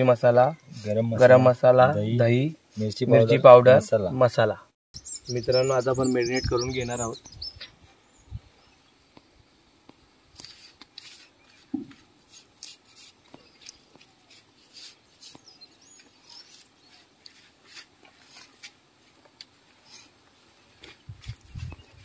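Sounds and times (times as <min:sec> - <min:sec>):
fingers rustling and scratching: 0:10.4 - 0:22.0.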